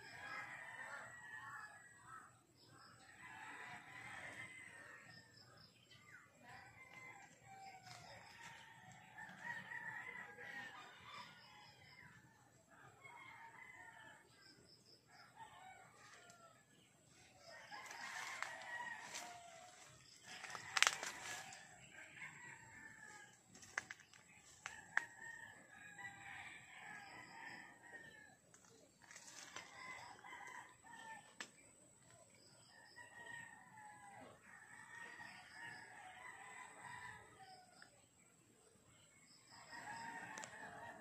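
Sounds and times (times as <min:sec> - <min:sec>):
roosters crowing: 0:06.5 - 0:12.1, 0:17.3 - 0:28.3, 0:29.0 - 0:31.2.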